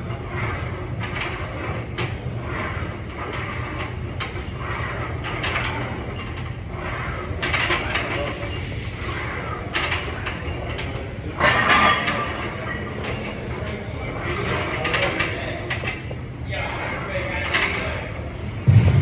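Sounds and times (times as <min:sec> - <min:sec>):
steady low rumble: 0:18.3 - 0:19.0.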